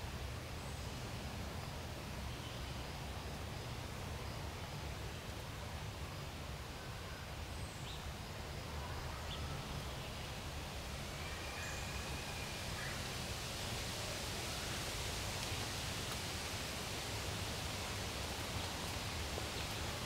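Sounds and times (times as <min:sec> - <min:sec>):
steady hiss: 0:00.0 - 0:20.0.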